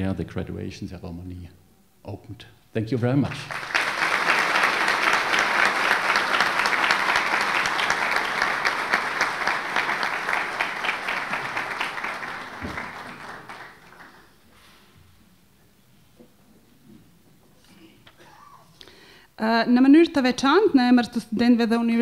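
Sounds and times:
audience applauding: 3.3 - 14.4.

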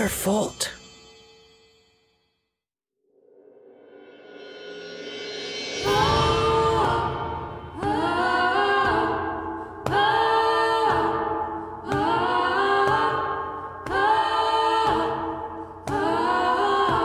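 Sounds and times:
a cappella voices singing chords: 5.8 - 17.0.

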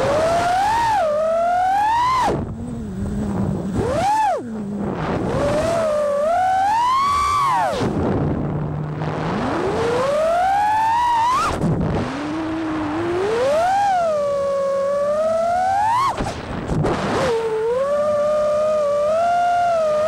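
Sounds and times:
drone motors whining: 0.0 - 20.0.

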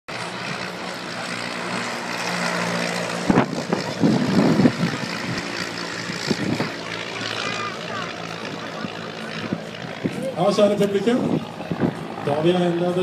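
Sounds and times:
propeller plane engines droning: 0.1 - 13.0
low thumps and rumbles: 10.8 - 12.3.

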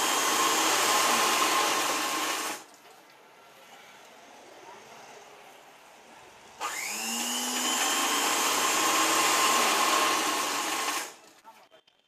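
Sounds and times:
sewing machine motor whirring: 6.6 - 11.3.

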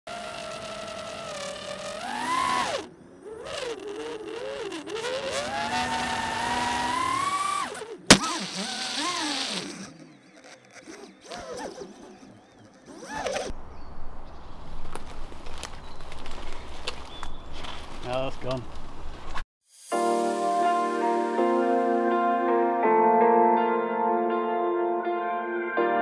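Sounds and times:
quadcopter motors whining: 0.1 - 13.5
sharp crack: 8.0 - 8.8.

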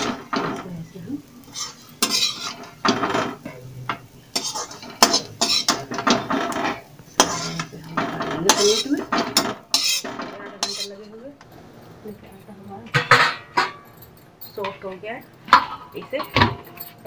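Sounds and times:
metal spatula scraping metal pan: 1.4 - 11.2.

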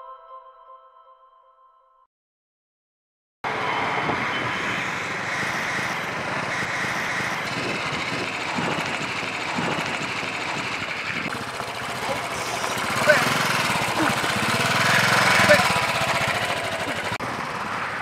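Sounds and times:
road noise: 3.4 - 18.0
motorcycle engine running: 4.7 - 18.0.

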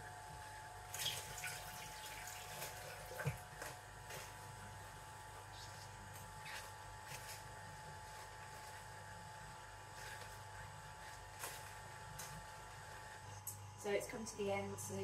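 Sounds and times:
juicer humming: 0.0 - 13.9
juice trickling into a jug: 0.9 - 3.4.

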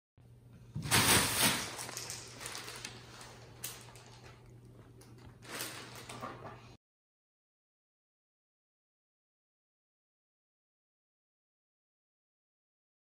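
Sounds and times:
plastic bag crinkling and rustling: 0.8 - 6.7.

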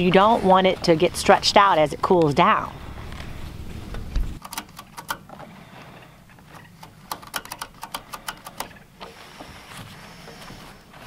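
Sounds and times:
chainsaw chain clicking: 4.4 - 5.5, 6.4 - 8.8.

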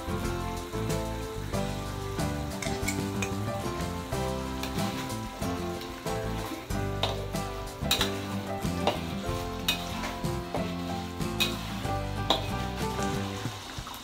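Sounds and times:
background music: 0.0 - 14.0
sauce sizzling and bubbling in a wok: 0.0 - 14.0
metal spatula scraping a pan: 4.6 - 13.2.

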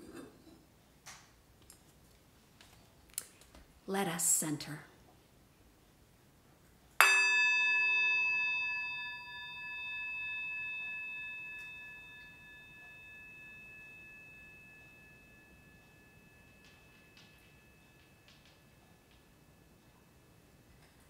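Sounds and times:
singing bowl struck and ringing: 7.0 - 20.6.

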